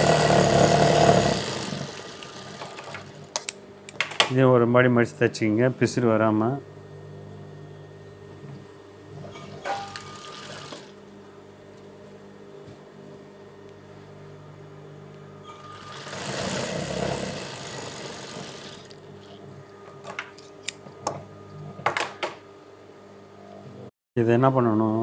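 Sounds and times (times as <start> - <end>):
sewing machine stitching: 0.0 - 3.4, 9.4 - 11.0, 15.5 - 19.0
steady low hum: 0.0 - 21.9.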